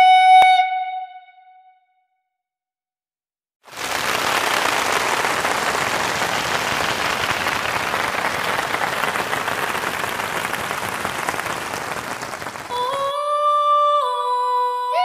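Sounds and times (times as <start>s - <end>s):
audience applause: 3.7s - 13.2s.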